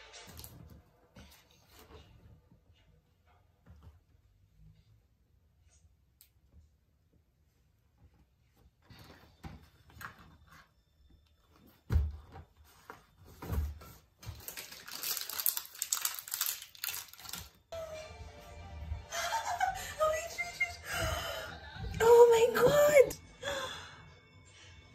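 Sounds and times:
bag and packaging rustling: 0:13.0 - 0:17.7.

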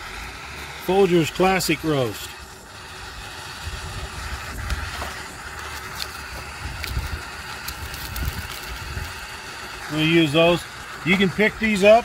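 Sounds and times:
gas stove burning with hiss: 0:00.0 - 0:12.0
paper packet crinkling: 0:05.7 - 0:09.2
wind rumbling on microphone: 0:06.3 - 0:09.3.

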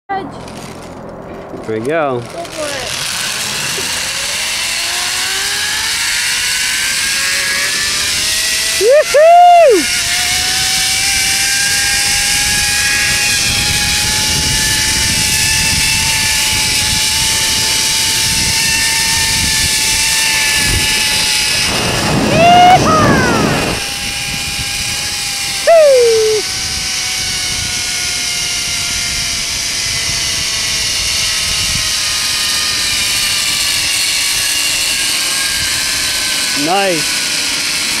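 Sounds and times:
rush of wind: 0:00.3 - 0:37.0
pulley wheels whining on cable: 0:00.3 - 0:38.0
person whooping: 0:08.8 - 0:09.9, 0:22.3 - 0:23.8, 0:25.7 - 0:26.4.

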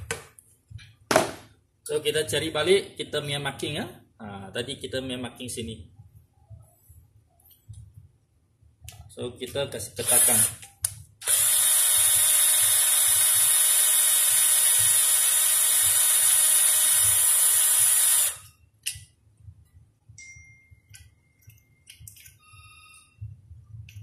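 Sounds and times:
cordless drill driving screw: 0:10.0 - 0:10.6, 0:11.2 - 0:18.5.

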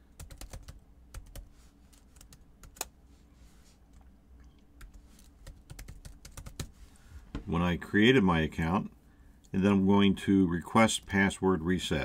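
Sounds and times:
computer keyboard typing: 0:00.2 - 0:02.9, 0:04.8 - 0:06.7.

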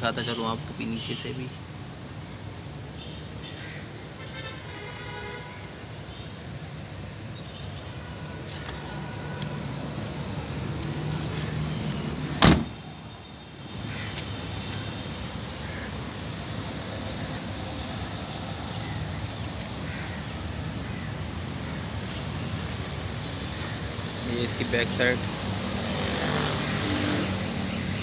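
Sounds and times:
car door shutting: 0:12.4 - 0:12.8.

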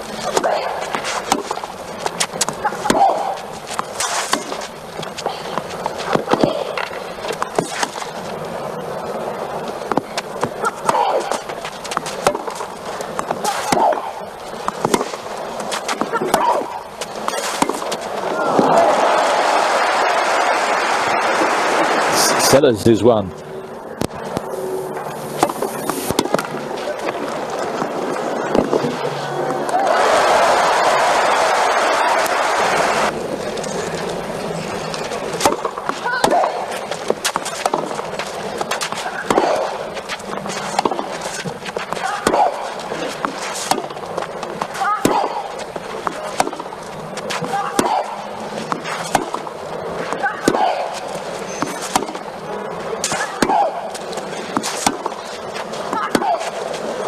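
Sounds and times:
tennis ball struck by rackets: 0:02.2 - 0:04.7, 0:09.9 - 0:14.1, 0:14.7 - 0:18.0, 0:35.3 - 0:38.0, 0:44.6 - 0:49.5, 0:51.6 - 0:52.2, 0:53.0 - 0:55.2
players grunting: 0:02.3 - 0:03.8, 0:10.5 - 0:12.6, 0:13.3 - 0:14.3, 0:15.9 - 0:23.4, 0:25.4 - 0:34.0, 0:38.1 - 0:43.7, 0:44.6 - 0:46.6, 0:47.4 - 0:49.1, 0:51.8 - 0:54.8.

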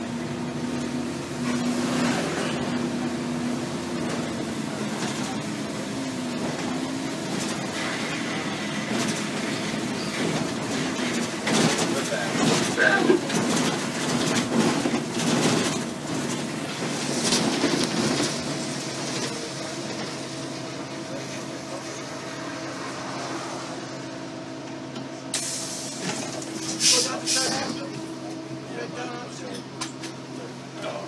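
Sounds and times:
bus engine drone: 0:00.0 - 0:31.0
road noise: 0:00.0 - 0:31.0
rattles and knocks: 0:10.1 - 0:18.5.

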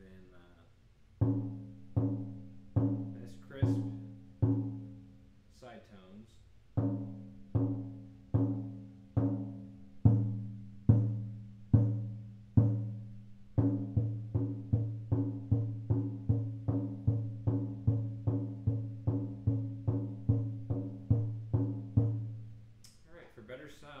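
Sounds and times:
frame drum booming: 0:01.2 - 0:05.0, 0:06.8 - 0:22.5.

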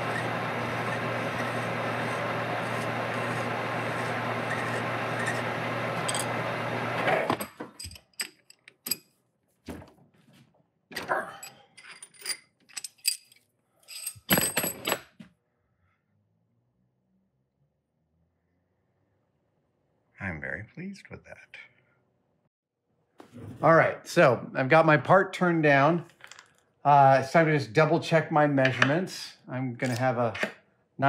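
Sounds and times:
metal lathe running: 0:00.0 - 0:07.0.

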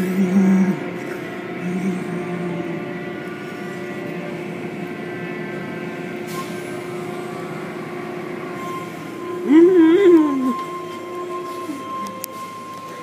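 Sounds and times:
car wash machine hum: 0:00.0 - 0:13.0.

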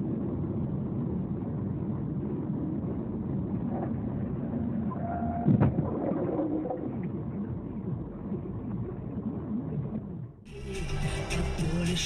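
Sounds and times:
car road and engine noise: 0:00.0 - 0:05.8.

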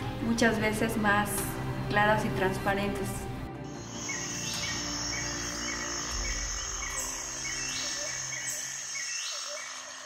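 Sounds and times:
insect trill: 0:03.7 - 0:10.0.

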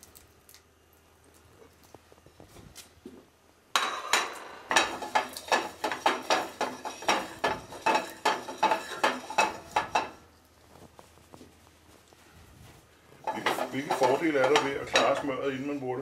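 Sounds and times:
metal cookware clinking: 0:03.8 - 0:10.2, 0:13.2 - 0:15.4.

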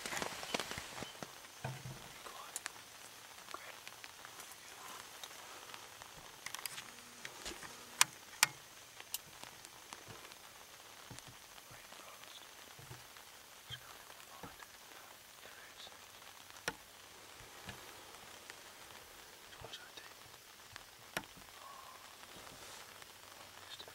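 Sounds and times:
light rain hiss: 0:00.0 - 0:23.9
raindrops ticking: 0:00.0 - 0:23.9.

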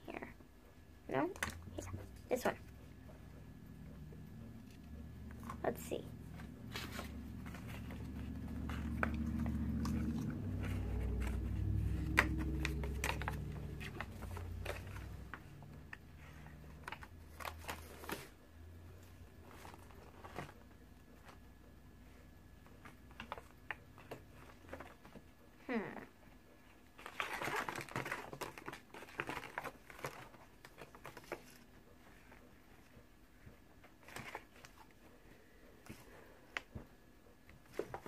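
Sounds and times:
low rumble: 0:03.4 - 0:16.2
paper and plastic packaging crinkling: 0:05.4 - 0:18.4, 0:26.9 - 0:32.4.

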